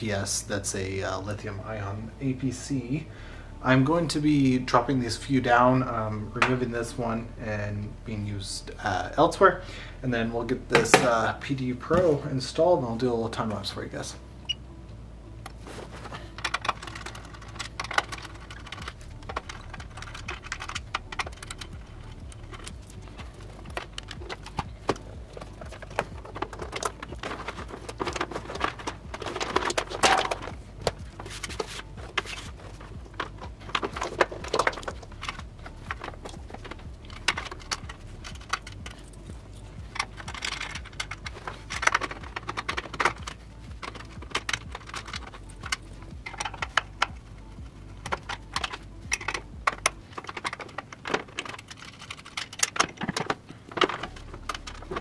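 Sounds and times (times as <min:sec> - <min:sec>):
steady low hum: 0:00.0 - 0:55.0
plugs and cables clattering: 0:10.7 - 0:14.1, 0:15.4 - 0:55.0.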